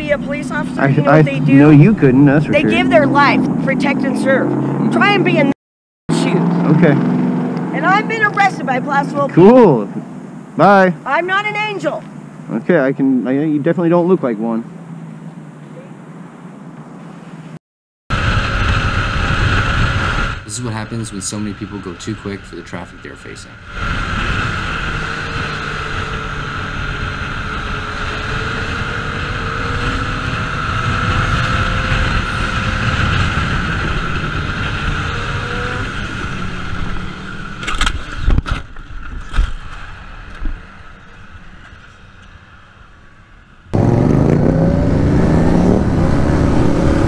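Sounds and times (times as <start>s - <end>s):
motorcycle engine at speed: 0.0s - 5.5s, 6.1s - 10.9s, 18.1s - 47.0s
motorcycle engine revving: 0.0s - 15.6s, 18.1s - 41.4s, 43.7s - 47.0s
rushing wind noise: 18.1s - 22.0s, 23.4s - 41.6s.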